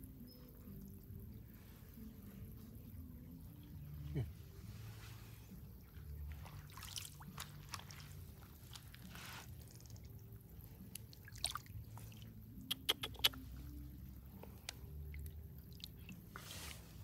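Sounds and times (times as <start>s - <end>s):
water drips and splashes: 0.0s - 4.0s, 4.6s - 17.0s
hands squelching in wet mud: 4.6s - 17.0s.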